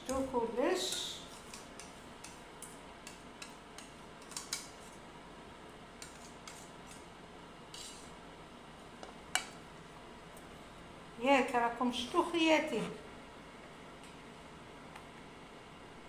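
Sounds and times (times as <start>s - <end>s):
whisk scraping metal saucepan: 0.8s - 2.4s, 6.0s - 7.0s, 7.7s - 8.1s.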